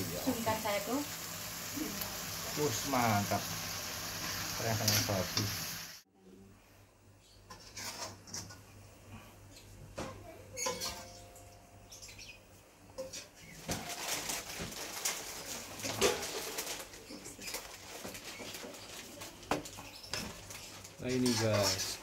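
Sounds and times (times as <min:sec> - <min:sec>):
metal spatula scraping a wok: 0:07.5 - 0:08.6, 0:21.1 - 0:22.0.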